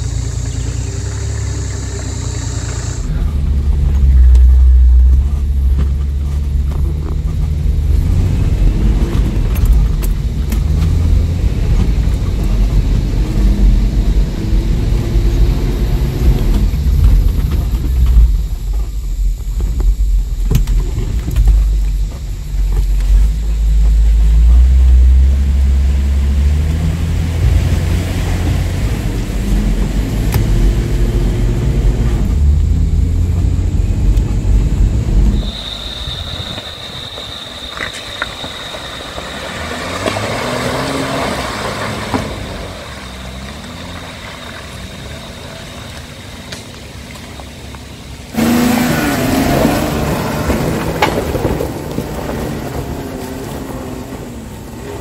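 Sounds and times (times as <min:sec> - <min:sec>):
thin high whine: 0:00.0 - 0:41.2
vehicle engine rumbling: 0:00.0 - 0:55.0.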